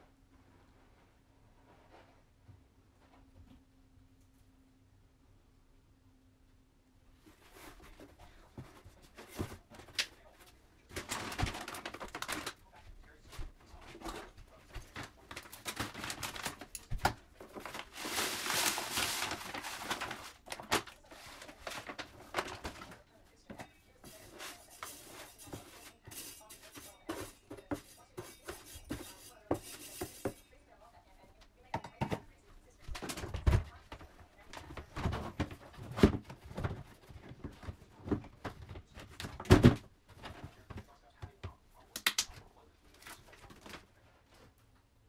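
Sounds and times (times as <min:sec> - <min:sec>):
plastic liner rustling: 0:07.3 - 0:30.4
cat litter poured into box: 0:17.6 - 0:23.0
metal scoop scraping: 0:24.0 - 0:30.6.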